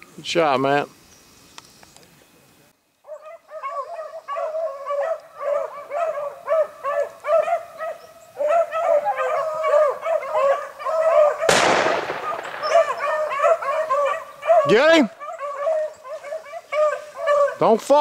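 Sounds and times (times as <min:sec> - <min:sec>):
hounds baying: 0:03.0 - 0:18.0
gunshot: 0:11.5 - 0:13.4.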